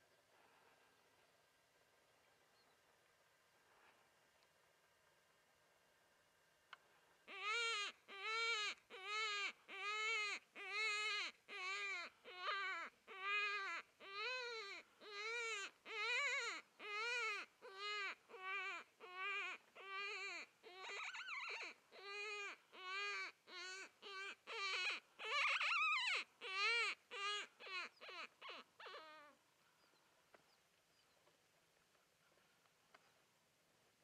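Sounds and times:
rabbit distress call: 7.3s - 29.4s.

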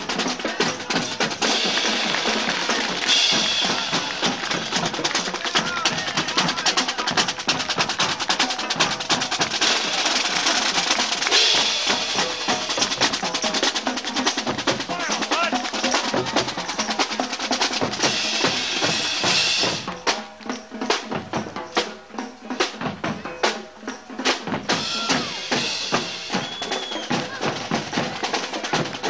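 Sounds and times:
bass drum beats: 0.0s - 21.9s
snare drums rattling: 0.0s - 21.9s, 24.2s - 29.0s.

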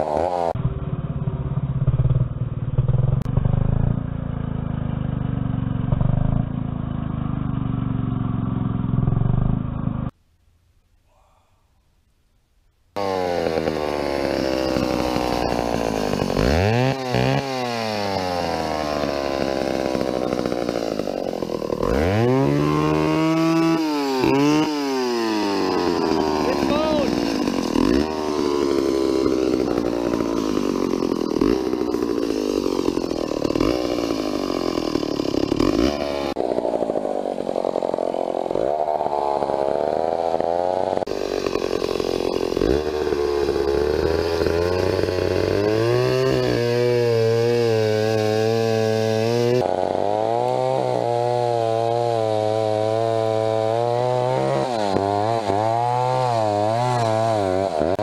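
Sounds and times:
chainsaw cutting tree: 0.0s - 0.6s, 13.0s - 58.0s.

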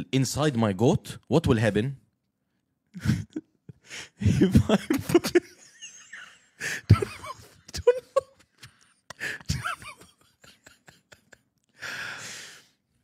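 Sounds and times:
man laughing hard: 3.0s - 11.8s
gasp for breath: 3.8s - 4.3s, 8.7s - 9.5s, 11.8s - 12.8s.

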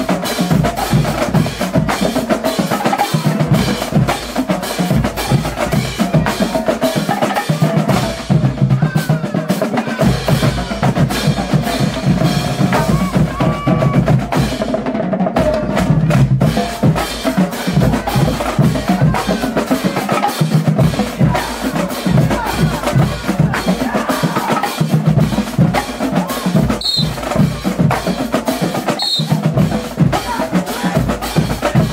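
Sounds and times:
cymbals: 0.0s - 14.7s, 15.4s - 31.9s
bass drums: 0.0s - 31.9s
tenor drums: 0.0s - 31.9s.

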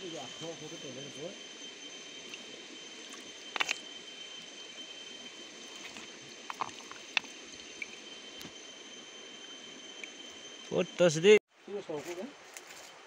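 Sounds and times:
faint high-pitched whine: 0.0s - 13.0s
stream trickling over stones: 2.2s - 8.4s.

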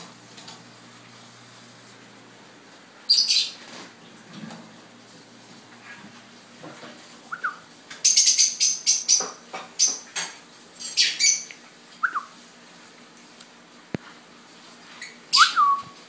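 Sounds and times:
lovebird shrill chirps: 3.1s - 3.5s, 7.3s - 9.2s, 15.3s - 15.8s.

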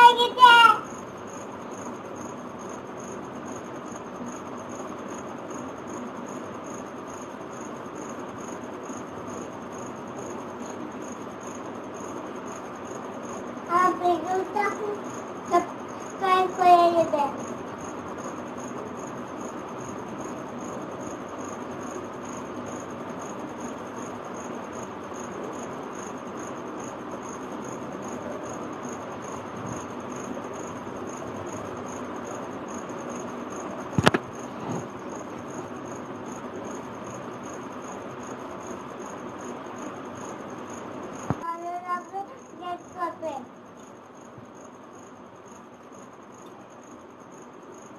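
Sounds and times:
sharp click: 34.0s - 34.3s.

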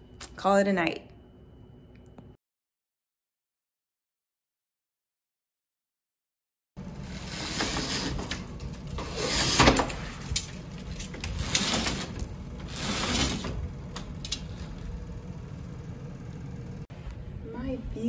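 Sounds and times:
roller shade being raised: 6.8s - 16.8s.

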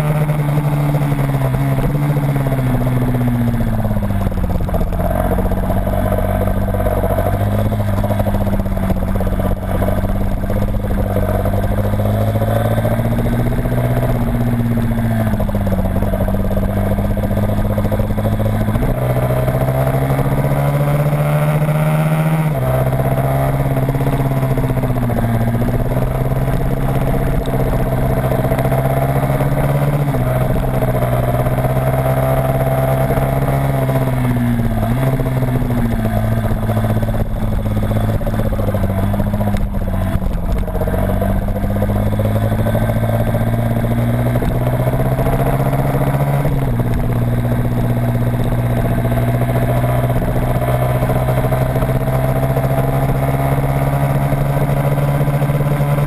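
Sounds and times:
vehicle engine at speed: 0.0s - 56.0s
wind and road rush: 0.0s - 56.0s.

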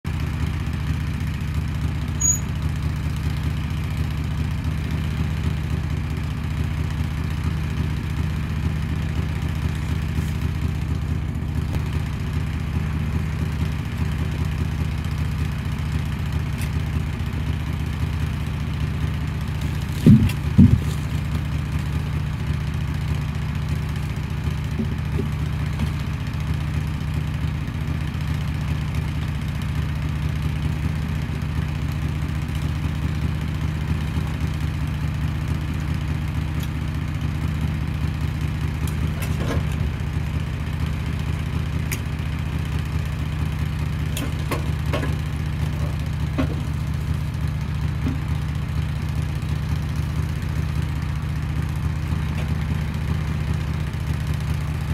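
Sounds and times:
sawmill engine idling: 0.1s - 54.9s
heavy thuds of log: 19.6s - 21.5s, 24.6s - 26.0s, 44.2s - 46.9s.

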